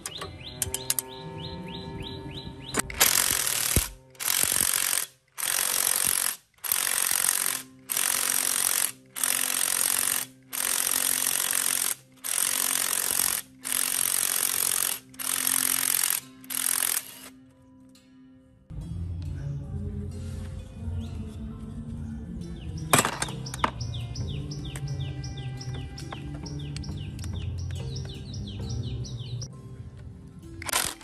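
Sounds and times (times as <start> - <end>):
impact wrench hammering: 2.8 - 17.1, 23.0 - 23.8.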